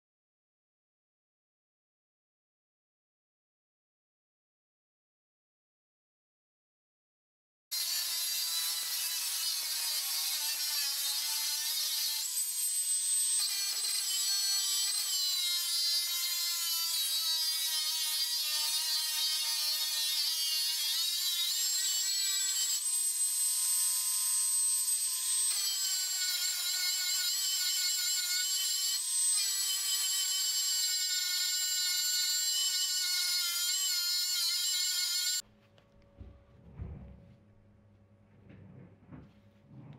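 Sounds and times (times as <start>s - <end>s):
angle grinder cutting metal: 7.7s - 35.4s.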